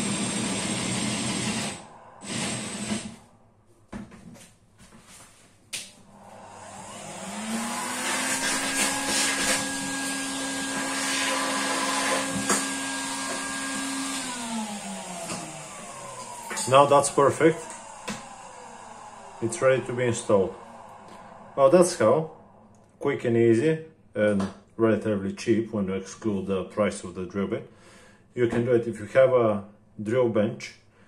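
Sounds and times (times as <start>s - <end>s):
cordless drill boring wood: 0.0s - 3.2s, 6.2s - 22.0s
vacuum cleaner running: 0.0s - 4.1s, 5.8s - 22.8s.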